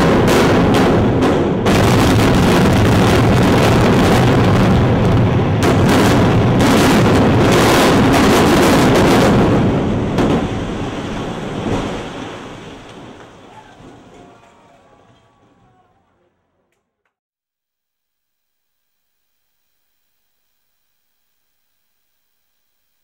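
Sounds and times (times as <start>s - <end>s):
sharp cracks of explosive charges: 0.0s - 14.5s
heavy rumble of building collapse: 0.0s - 16.2s.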